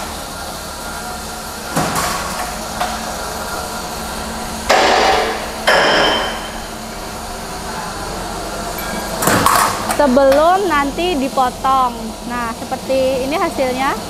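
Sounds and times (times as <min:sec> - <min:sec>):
electric motor hum: 0:00.0 - 0:14.0
loud metallic clatters: 0:01.6 - 0:07.2
sharp metallic knock: 0:04.7 - 0:06.7.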